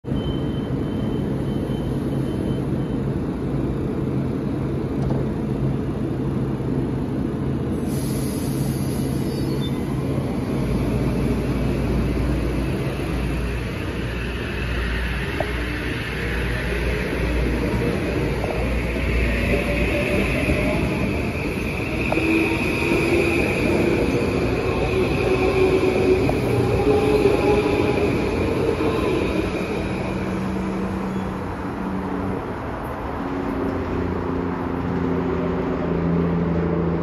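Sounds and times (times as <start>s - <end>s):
train wheels rumbling: 3.5s - 37.0s
train motor whine: 8.3s - 31.4s.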